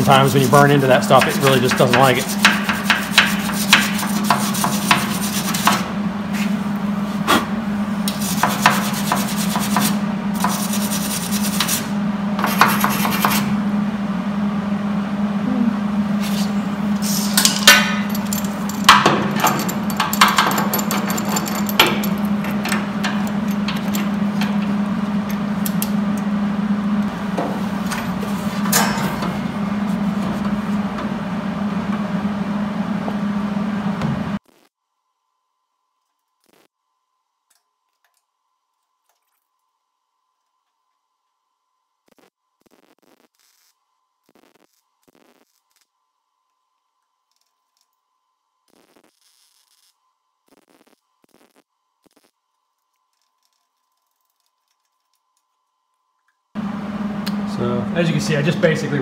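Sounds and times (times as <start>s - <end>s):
steady low hum: 0.0s - 39.0s, 50.0s - 59.0s
tools knocking on metal: 18.7s - 24.7s.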